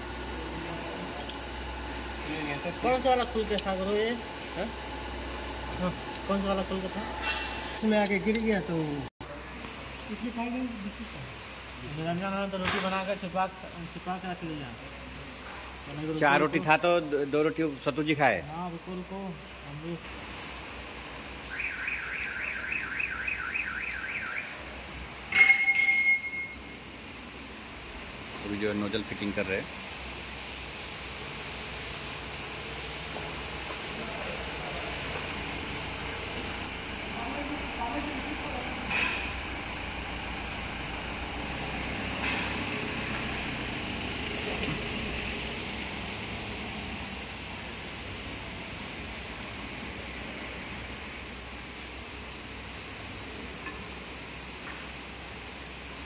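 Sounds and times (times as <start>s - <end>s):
machine hum and hiss: 0.0s - 56.0s
sharp strike with ringing tone: 25.3s - 26.8s.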